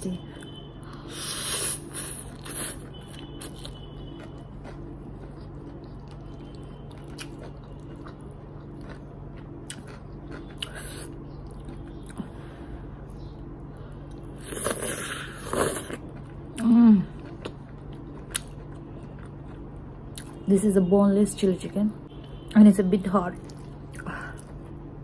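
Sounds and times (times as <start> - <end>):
slurping and chewing noodles: 0.9 - 12.2, 14.1 - 19.6.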